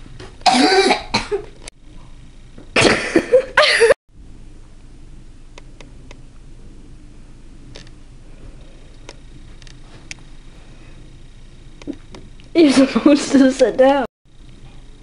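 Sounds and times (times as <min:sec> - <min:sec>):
boy laughing: 0:02.8 - 0:04.0, 0:12.6 - 0:13.8.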